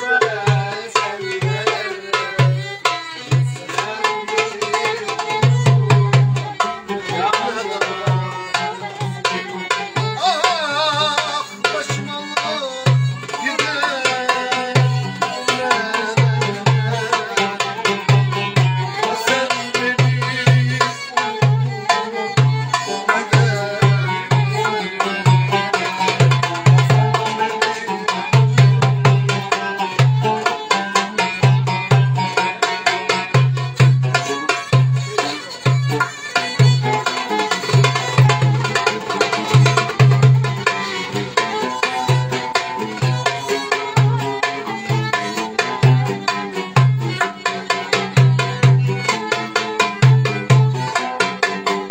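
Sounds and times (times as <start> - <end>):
bowed violin melody: 0.0 - 51.9
hand drum beat: 0.0 - 51.9
plucked lute: 12.8 - 51.9.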